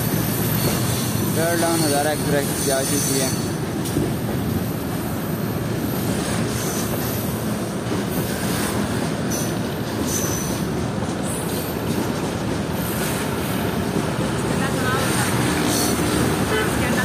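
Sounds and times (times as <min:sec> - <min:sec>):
freight wagons rumbling on track: 0:00.0 - 0:17.0
high-pitched wheel squeals: 0:01.5 - 0:03.5.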